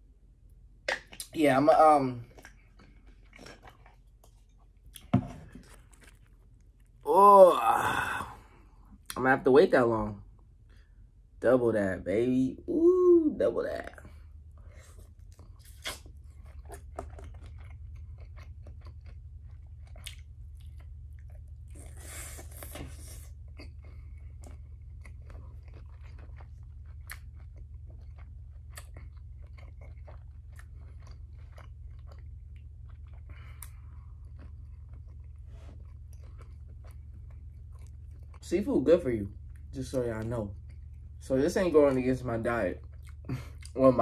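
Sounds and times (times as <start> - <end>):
chewing with wet crunches: 0.9 - 7.1, 13.8 - 44.0
breathy noise: 7.0 - 8.9.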